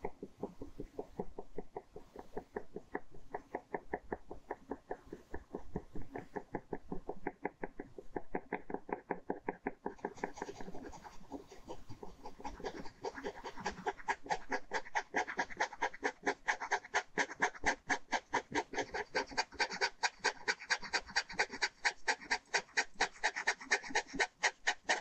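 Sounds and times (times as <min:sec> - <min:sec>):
ballpoint pen scratching paper: 0:10.0 - 0:25.0.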